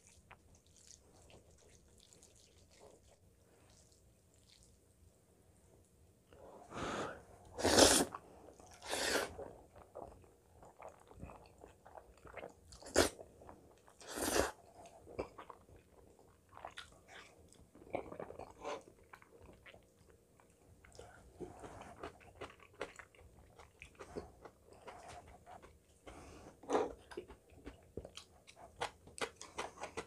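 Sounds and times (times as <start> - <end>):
quiet chewing: 0.0 - 4.8, 8.1 - 30.0
loud noodle slurps: 7.5 - 9.5, 12.8 - 13.2, 14.0 - 14.6.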